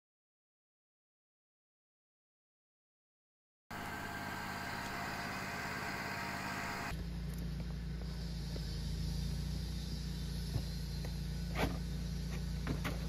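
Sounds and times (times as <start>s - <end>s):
generator humming: 3.7s - 13.0s.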